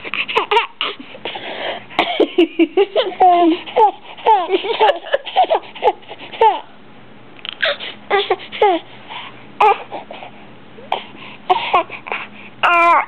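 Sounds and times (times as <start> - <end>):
baby babbling and squealing: 7.6 - 8.8, 12.6 - 13.0.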